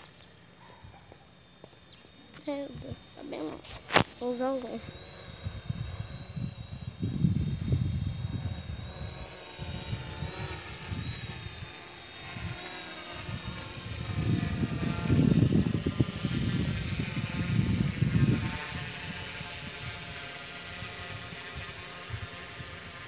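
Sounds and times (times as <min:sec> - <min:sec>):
drone propellers whining: 0:00.0 - 0:23.0
gusty low rumble: 0:05.3 - 0:11.6.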